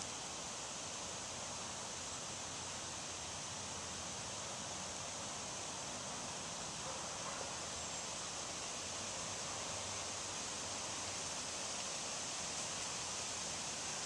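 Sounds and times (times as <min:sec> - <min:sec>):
outdoor ambient hiss: 0:00.0 - 0:14.0.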